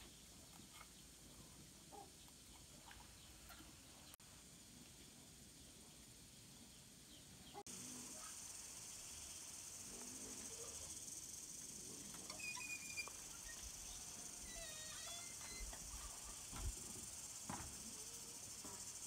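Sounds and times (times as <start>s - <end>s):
high-pitched insect chorus: 7.7s - 19.0s.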